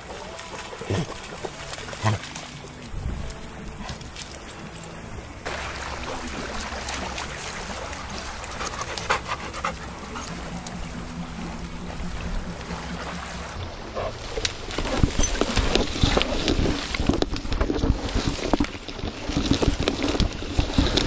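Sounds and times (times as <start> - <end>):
small waves lapping: 0.0 - 21.0
dog panting: 0.2 - 2.6, 6.6 - 14.1.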